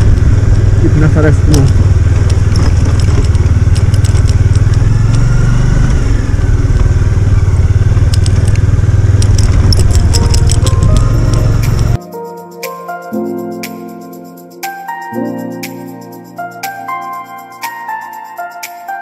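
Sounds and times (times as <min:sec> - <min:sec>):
gravel crackling under tyres: 0:00.0 - 0:12.0
motorcycle engine rumbling: 0:00.0 - 0:12.0.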